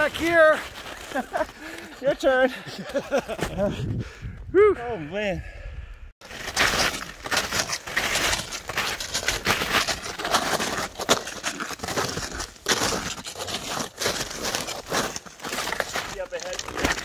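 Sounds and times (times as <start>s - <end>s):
footsteps crunching through snow: 0.0s - 2.3s, 6.2s - 17.0s.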